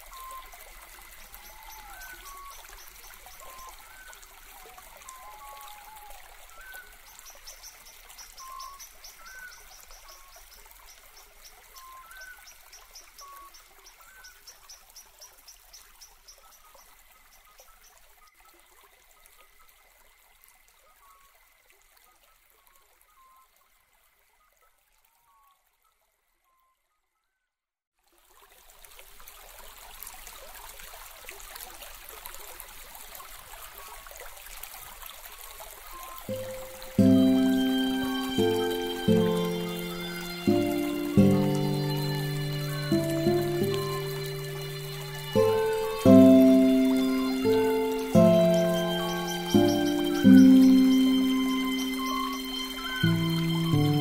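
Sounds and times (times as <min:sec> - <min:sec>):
rushing water: 0:00.0 - 0:23.1, 0:28.0 - 0:54.0
birds chirping: 0:36.0 - 0:54.0.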